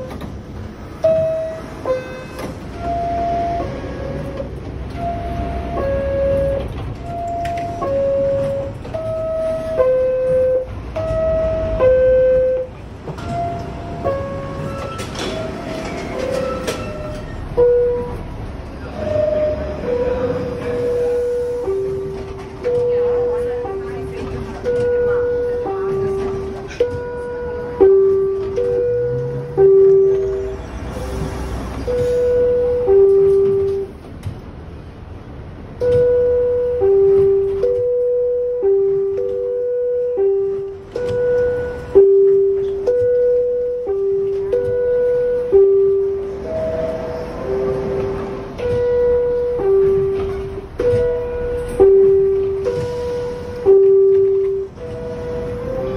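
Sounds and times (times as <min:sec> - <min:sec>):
two-note door chime: 0:35.8 - 0:55.9.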